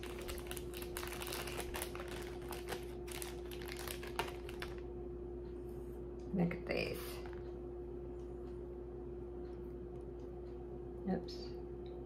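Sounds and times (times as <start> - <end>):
jewelry and wrapping rustling: 0.0 - 4.8
faint steady hum: 0.0 - 12.0.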